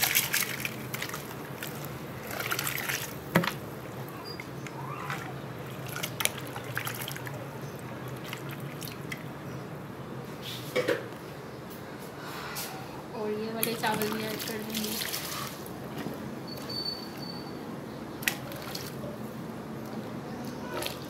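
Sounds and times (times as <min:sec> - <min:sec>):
water boiling: 0:00.0 - 0:09.5, 0:13.6 - 0:16.6
water splashing and trickling: 0:00.0 - 0:09.7, 0:13.6 - 0:21.0.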